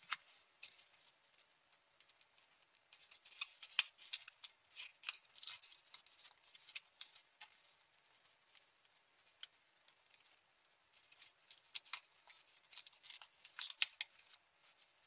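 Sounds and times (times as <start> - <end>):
folded paper crinkling: 0.0 - 15.0.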